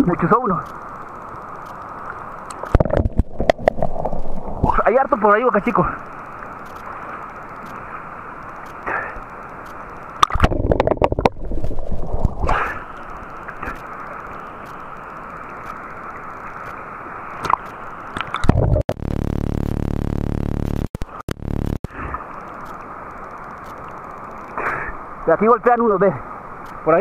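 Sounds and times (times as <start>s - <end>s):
steady hum: 0.0s - 27.0s
muffled water sloshing and gurgling: 0.5s - 19.0s
water splashes: 1.7s - 18.8s.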